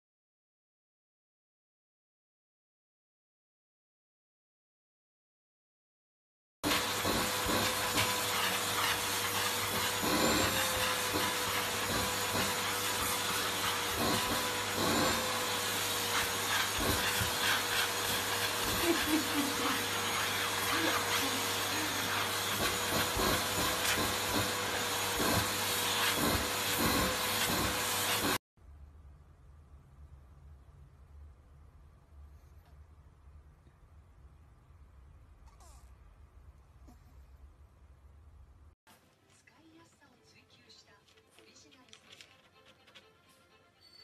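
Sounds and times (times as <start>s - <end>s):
vacuum cleaner motor whine: 6.6s - 28.4s.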